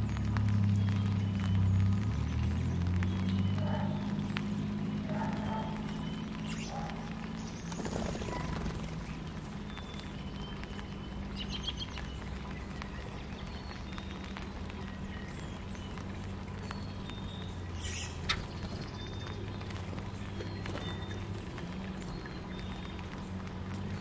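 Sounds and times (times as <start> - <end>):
bird chirps: 9.6 - 21.4.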